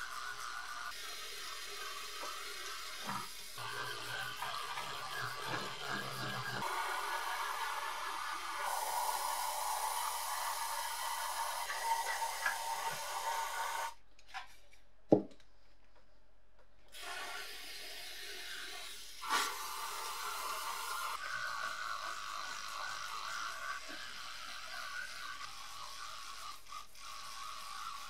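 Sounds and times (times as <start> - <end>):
water spraying: 0.0 - 14.0
rotary tool whining: 3.0 - 14.0
aerosol can spraying: 4.4 - 14.0, 22.7 - 28.0.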